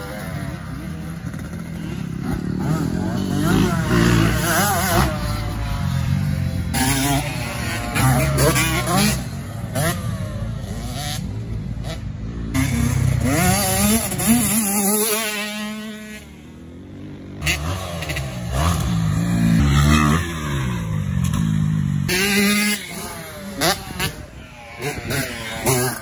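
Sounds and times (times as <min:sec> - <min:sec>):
dirt bike engines revving: 0:00.0 - 0:26.0.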